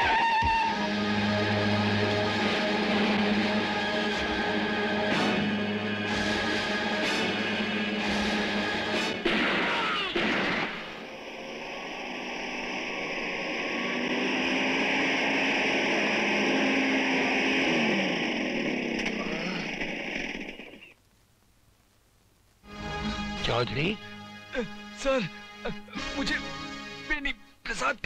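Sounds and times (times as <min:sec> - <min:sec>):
low hum: 0:00.7 - 0:09.3, 0:10.2 - 0:21.0
gunshots: 0:09.0 - 0:11.0
steady rushing noise: 0:10.7 - 0:20.9.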